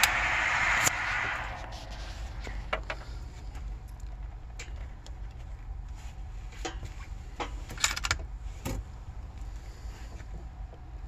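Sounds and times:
steady low hum: 0:00.0 - 0:11.0
rifle handling clicks and knocks: 0:04.0 - 0:08.8.

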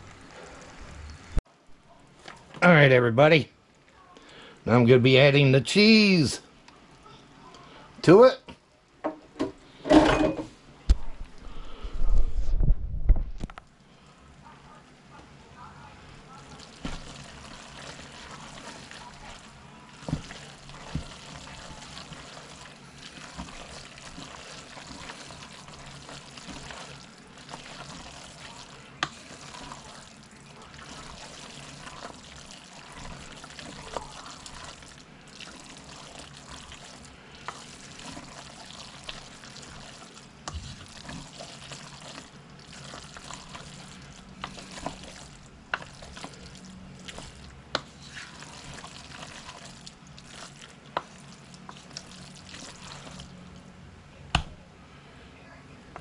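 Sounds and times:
spoon stirring sticky macaroni: 0:16.1 - 0:53.7.

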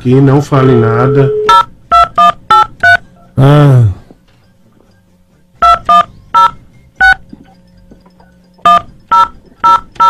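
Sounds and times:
phone keypad dialing beeps: 0:01.1 - 0:03.0, 0:05.6 - 0:10.0.

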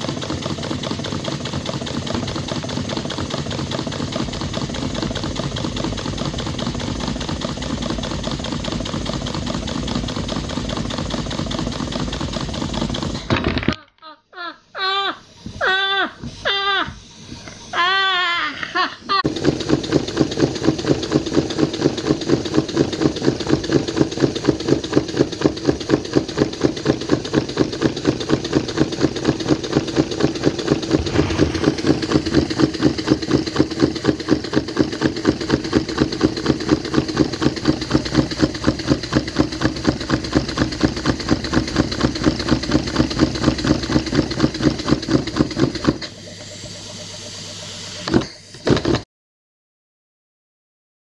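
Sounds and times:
model steam engine running: 0:00.0 - 0:13.5, 0:19.2 - 0:49.0
brief loud sound: 0:30.9 - 0:32.6
low hum: 0:30.9 - 0:33.2.

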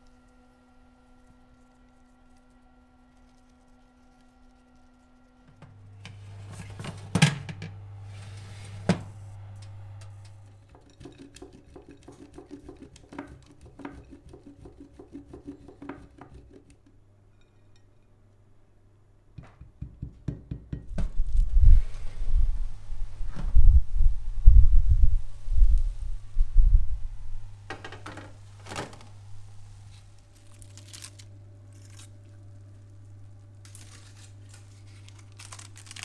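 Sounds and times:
steady low hum: 0:00.0 - 0:19.5, 0:20.8 - 0:36.0
parchment paper rustling: 0:01.1 - 0:07.2, 0:28.6 - 0:36.0
baking tray knocking in oven: 0:10.7 - 0:16.5
cheese grated on box grater: 0:10.8 - 0:16.8.

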